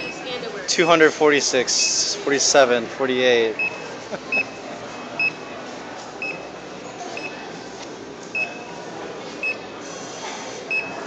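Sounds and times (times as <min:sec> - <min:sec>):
store murmur: 0:00.0 - 0:11.0
barcode scanner beeps: 0:03.6 - 0:04.6, 0:05.2 - 0:05.4, 0:06.2 - 0:06.6, 0:07.2 - 0:07.4, 0:08.3 - 0:08.7, 0:10.7 - 0:11.0.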